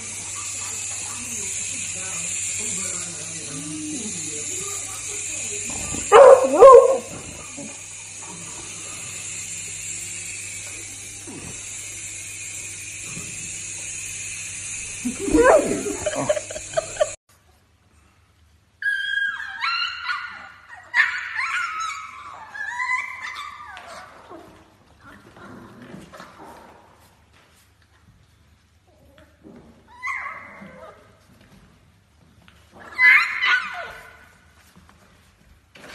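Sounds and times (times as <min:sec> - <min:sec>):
toy helicopter motor whirring: 0:00.0 - 0:17.2
dog howling: 0:06.1 - 0:07.1, 0:15.1 - 0:16.4
puppies whining and yipping: 0:18.8 - 0:24.2.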